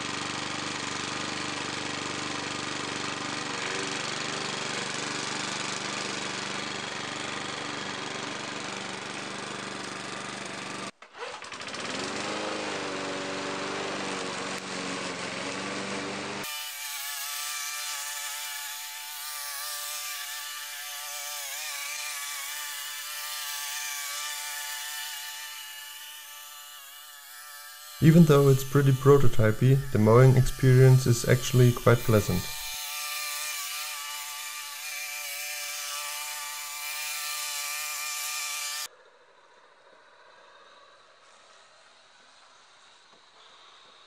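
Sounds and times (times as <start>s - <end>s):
lawn mower engine running: 0.0s - 16.4s, 28.0s - 32.7s.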